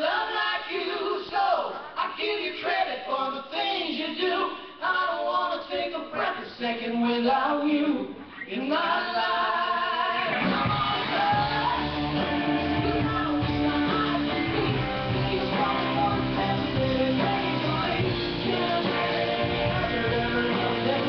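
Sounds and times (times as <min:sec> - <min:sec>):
voices singing in harmony: 0:00.0 - 0:21.0
band with guitars and bass: 0:09.6 - 0:21.0.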